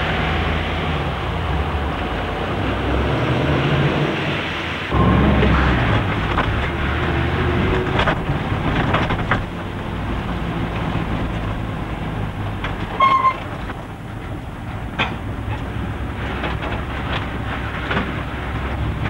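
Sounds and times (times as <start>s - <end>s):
vehicle engine hum and road noise: 0.0s - 19.0s
light rattles and knocks: 7.8s - 19.0s
short high squeak: 13.0s - 13.5s.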